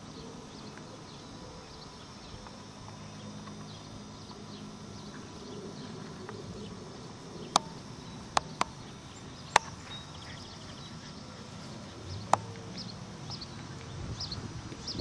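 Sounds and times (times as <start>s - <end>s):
faint bird chirps: 0.0s - 15.0s
sharp clicks: 7.5s - 9.8s.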